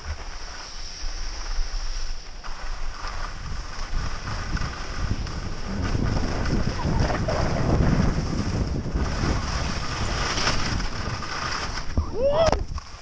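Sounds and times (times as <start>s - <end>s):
skis sliding over snow: 0.0s - 13.0s
wind rushing over microphone: 2.7s - 13.0s.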